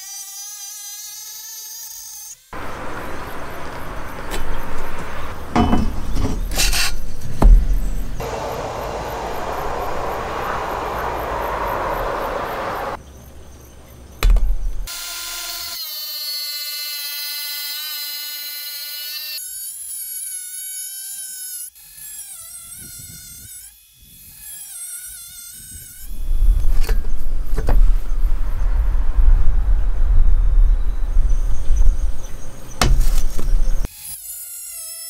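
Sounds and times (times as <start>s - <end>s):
angle grinder whining: 2.6s - 13.0s
loud low rushing noise: 7.0s - 13.0s, 26.1s - 33.9s.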